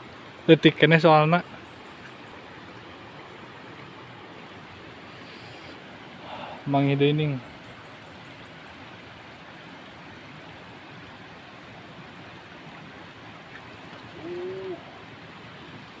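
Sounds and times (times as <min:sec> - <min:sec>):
outdoor background hiss: 0:00.0 - 0:16.0
short low-pitched call: 0:14.2 - 0:14.9.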